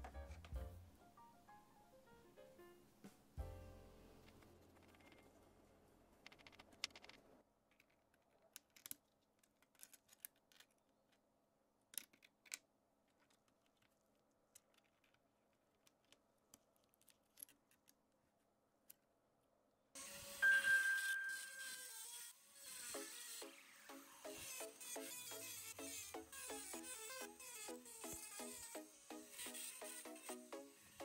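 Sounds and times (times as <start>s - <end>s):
soft background music: 0.0s - 4.6s, 22.7s - 31.0s.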